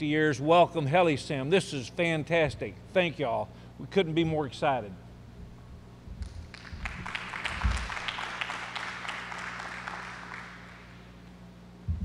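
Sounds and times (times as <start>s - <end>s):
steady low hum: 0.0s - 12.0s
small audience applauding: 6.2s - 11.2s.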